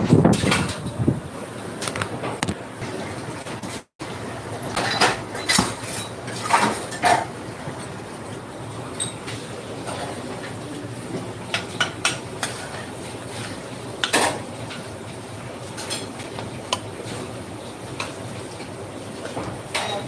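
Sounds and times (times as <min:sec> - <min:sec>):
metal utensils clinking on pots: 0:04.7 - 0:07.9, 0:08.9 - 0:10.6, 0:11.2 - 0:14.9, 0:15.8 - 0:17.2, 0:19.2 - 0:20.0.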